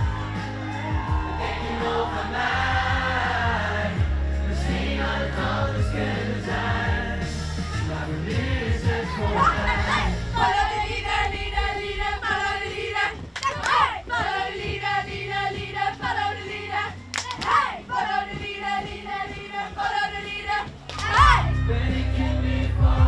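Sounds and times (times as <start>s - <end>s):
group of voices singing: 0.0s - 23.0s.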